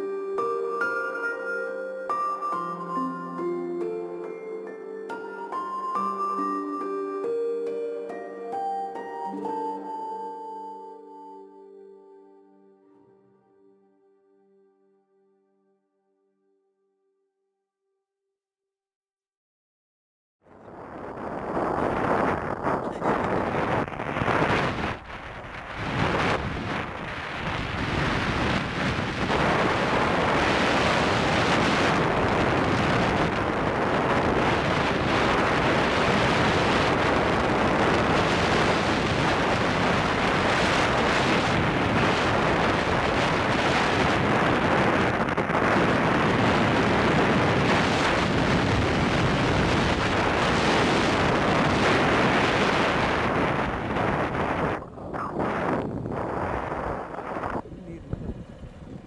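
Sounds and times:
wind roaring over microphone: 0:20.5 - 0:59.0.

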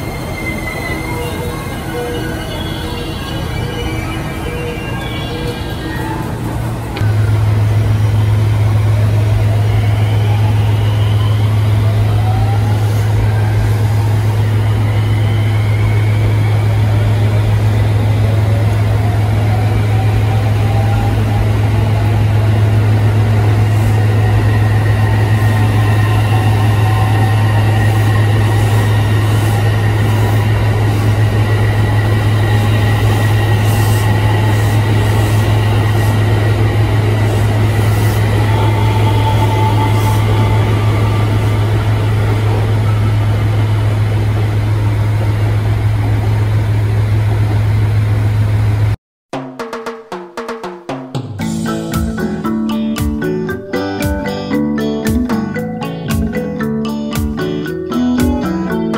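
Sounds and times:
electric train motors whining: 0:00.0 - 0:48.8
loud low hum: 0:06.7 - 0:49.0.

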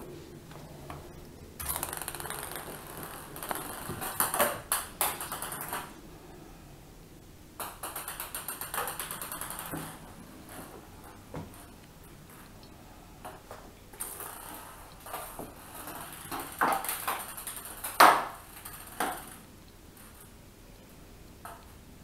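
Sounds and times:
ping pong ball bouncing on tiles: 0:01.6 - 0:06.0, 0:07.6 - 0:10.8, 0:14.0 - 0:19.4.

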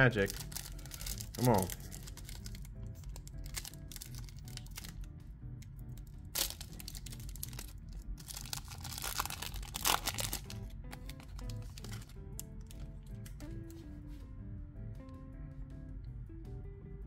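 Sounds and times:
foil wrapper tearing and crinkling: 0:00.0 - 0:05.0, 0:06.0 - 0:13.3
background music: 0:00.0 - 0:17.0.

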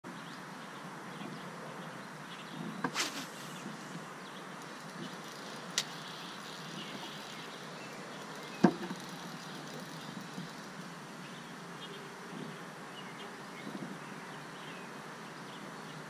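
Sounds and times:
outdoor background noise: 0:00.0 - 0:16.0
tackle and boat clicks and knocks: 0:04.6 - 0:10.9.

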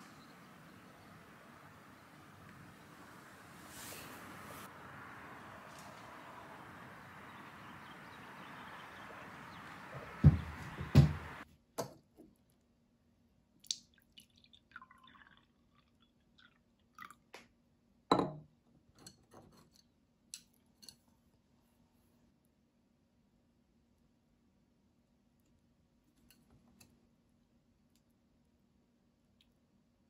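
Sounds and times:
open-air hiss: 0:00.0 - 0:11.4
dull thumps: 0:09.9 - 0:11.4
dishes knocking and clinking: 0:10.0 - 0:11.9, 0:18.1 - 0:18.4
coffee pouring into a mug: 0:14.0 - 0:17.3.

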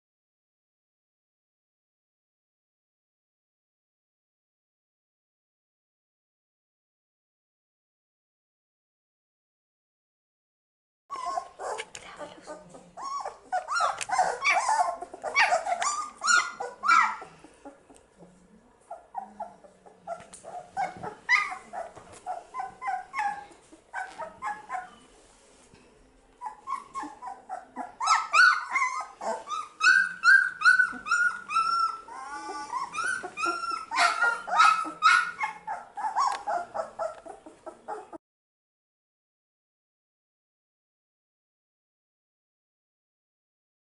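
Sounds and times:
puppies whimpering and yelping: 0:11.1 - 0:18.0, 0:18.9 - 0:25.1, 0:26.4 - 0:38.2.

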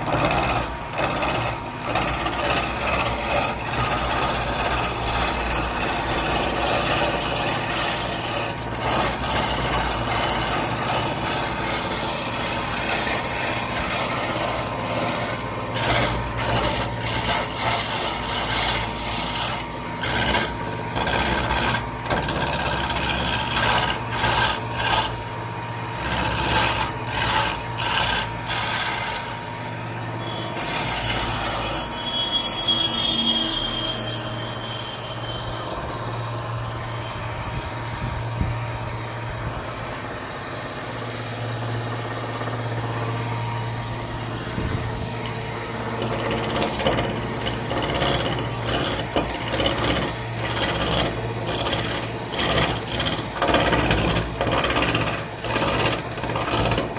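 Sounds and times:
sharp short chisel cuts: 0:00.0 - 0:25.3, 0:25.9 - 0:29.4, 0:46.0 - 0:56.9
chisel rasping on lathe wood: 0:00.0 - 0:35.7, 0:44.1 - 0:56.9
lathe low hum: 0:00.0 - 0:56.9.

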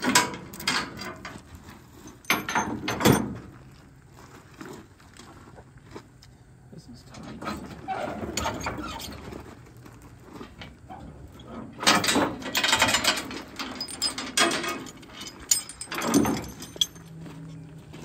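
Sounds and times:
chains clanking on iron frame: 0:00.0 - 0:03.6, 0:07.1 - 0:09.4, 0:10.4 - 0:18.0.

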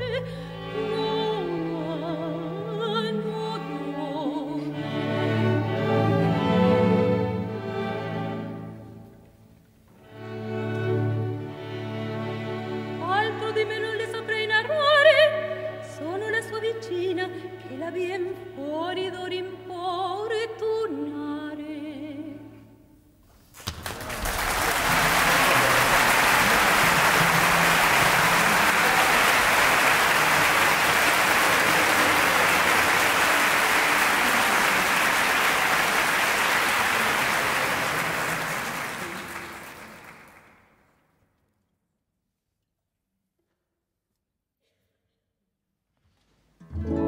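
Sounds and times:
soprano singing with orchestra: 0:00.0 - 0:08.4, 0:12.5 - 0:22.7
audience applauding: 0:23.6 - 0:40.8.

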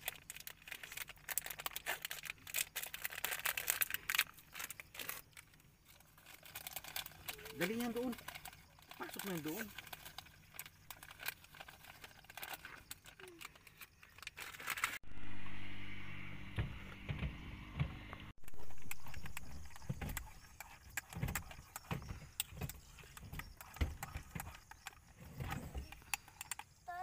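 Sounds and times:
steady low-toned hum: 0:15.0 - 0:18.8.

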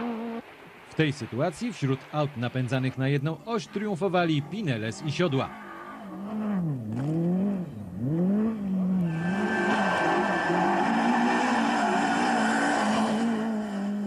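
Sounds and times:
car engine revving hard: 0:06.0 - 0:14.0.

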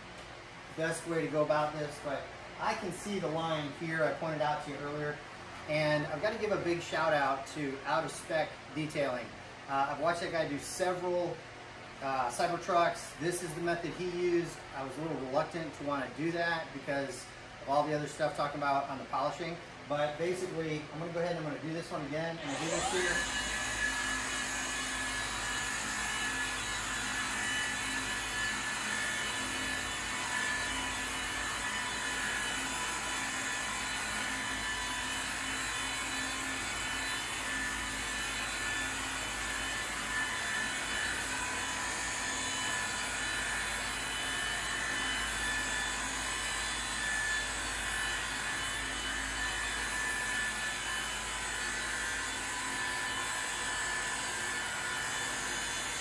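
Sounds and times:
polisher running: 0:22.0 - 0:56.0.

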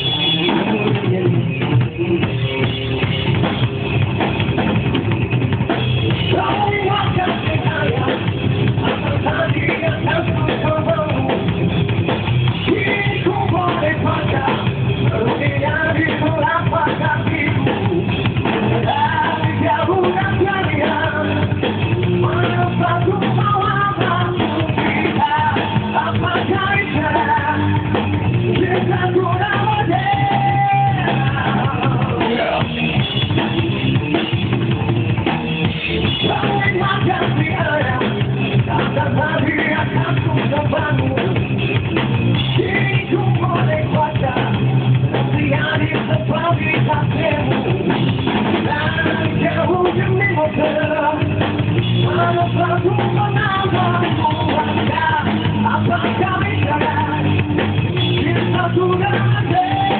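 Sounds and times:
singer's vocals: 0:00.0 - 0:02.4, 0:06.2 - 0:11.7, 0:12.5 - 0:33.3, 0:35.9 - 0:59.9
rock band playing live: 0:00.0 - 0:59.9.

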